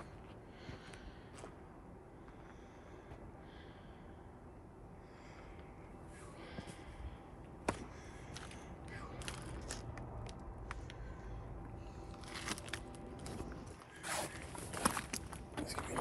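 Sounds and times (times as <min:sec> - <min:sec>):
footsteps crunching on rubble: 0:07.6 - 0:10.9, 0:12.0 - 0:16.0.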